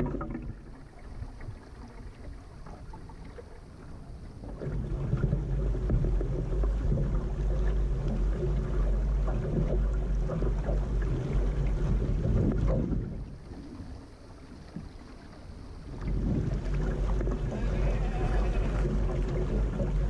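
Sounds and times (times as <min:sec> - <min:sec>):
water splashing along a boat hull: 0:00.0 - 0:20.0
wind rumbling on microphone: 0:04.4 - 0:14.9, 0:15.8 - 0:20.0.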